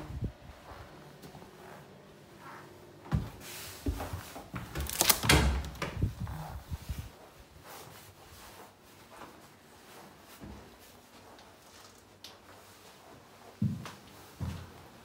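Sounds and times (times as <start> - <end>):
footsteps: 0.0 - 14.9
door opening and swinging: 4.5 - 6.2.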